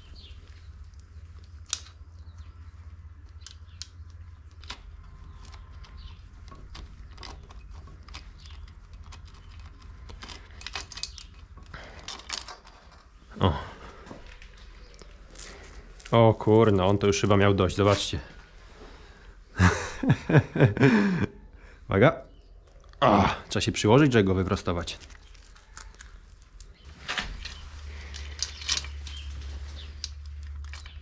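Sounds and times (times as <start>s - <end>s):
steady low hum: 0.0s - 31.0s
metal chain clunk and clinking: 5.0s - 13.1s, 27.0s - 31.0s.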